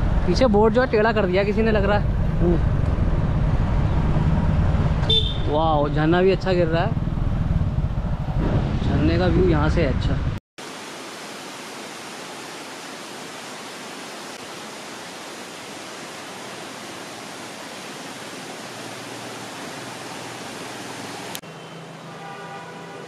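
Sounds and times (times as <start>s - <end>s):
waterfall rushing: 10.6s - 21.4s.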